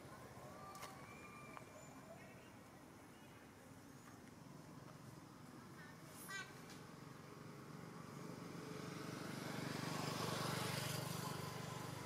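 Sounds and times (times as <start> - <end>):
motor vehicle passing by: 6.8 - 12.0.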